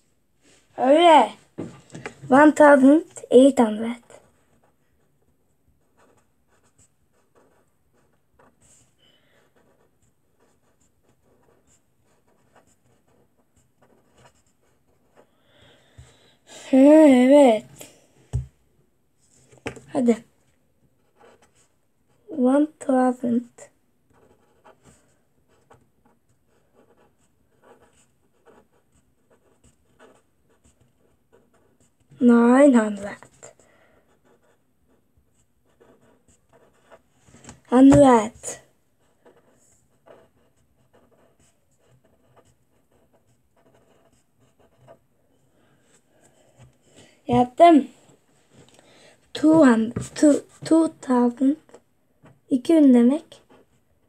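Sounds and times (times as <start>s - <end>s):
pen scratching on paper: 5.8s - 17.7s, 21.0s - 23.5s, 24.1s - 47.8s, 49.4s - 51.5s.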